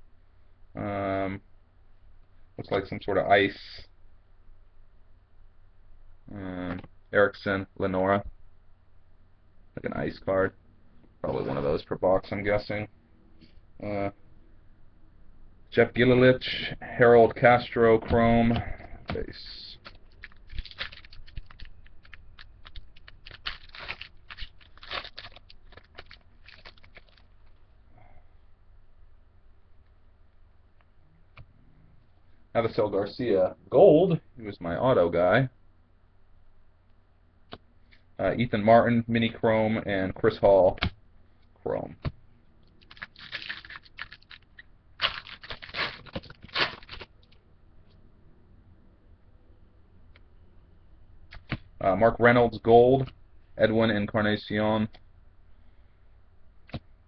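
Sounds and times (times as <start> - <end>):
cards being flipped through: 19.1 - 27.6, 42.8 - 47.1
foil wrapper crinkling and tearing: 19.2 - 27.6, 42.8 - 47.3.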